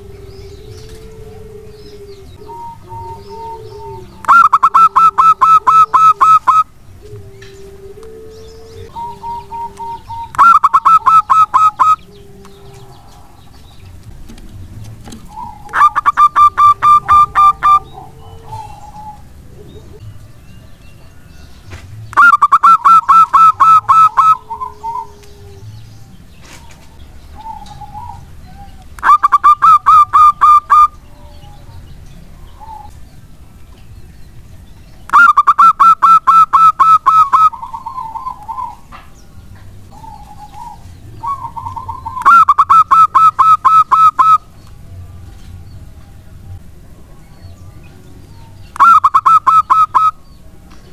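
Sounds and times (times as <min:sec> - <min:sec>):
dove cooing rapidly: 0:00.0 - 0:14.4, 0:15.0 - 0:20.2, 0:22.1 - 0:33.0, 0:35.1 - 0:38.9, 0:39.9 - 0:44.5, 0:48.8 - 0:50.2.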